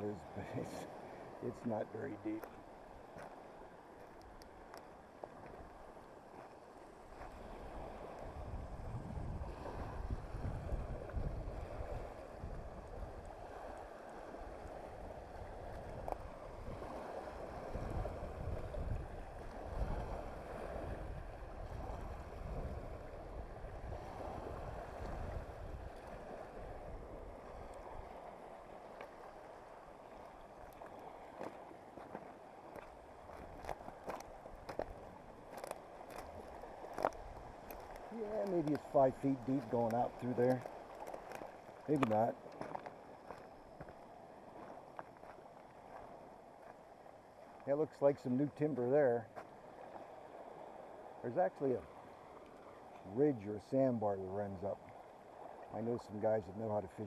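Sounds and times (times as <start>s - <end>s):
waves lapping on stony shore: 0.0s - 57.0s
wind gusting on microphone: 7.1s - 31.6s.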